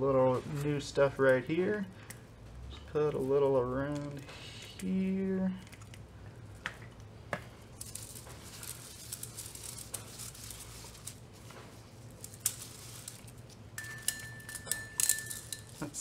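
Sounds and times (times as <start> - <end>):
steady low hum: 0.0 - 16.0
metal parts clicking and tapping: 12.2 - 16.0.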